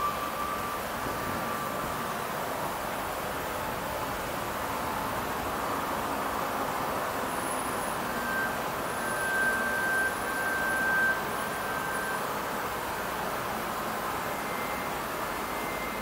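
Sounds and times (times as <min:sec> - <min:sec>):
thin high tone: 0:00.0 - 0:02.4
distant traffic noise: 0:00.0 - 0:16.0.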